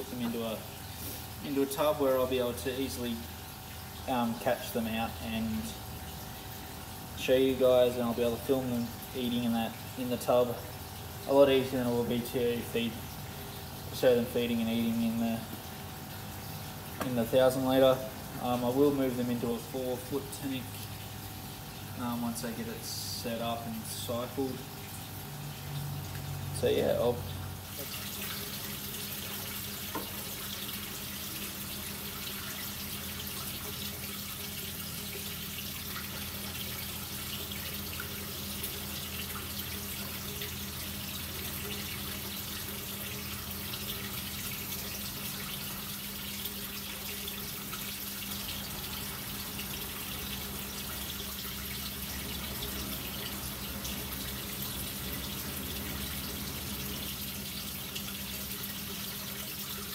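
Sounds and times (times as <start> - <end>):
water running: 0.0 - 59.9.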